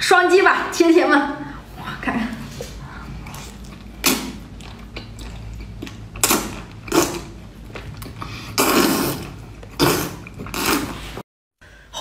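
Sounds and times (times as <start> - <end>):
wet slurping and sucking: 2.5 - 11.2.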